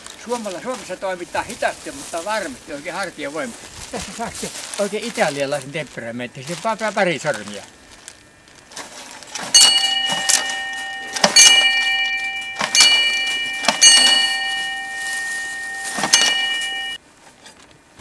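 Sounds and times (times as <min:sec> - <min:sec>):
metal disc gong ringing: 0:07.2 - 0:17.0.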